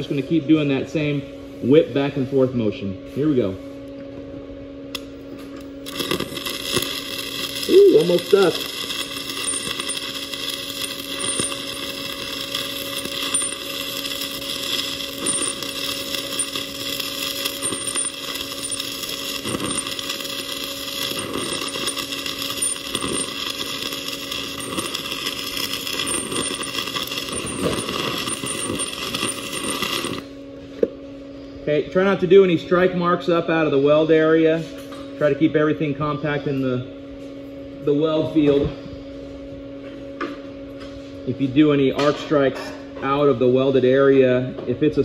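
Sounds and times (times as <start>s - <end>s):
welding arc crackling: 4.9s - 30.4s.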